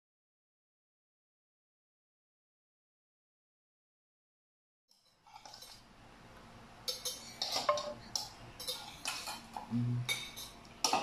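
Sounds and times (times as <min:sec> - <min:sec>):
metal pot and utensils clinking: 0:04.9 - 0:05.9, 0:06.8 - 0:11.0.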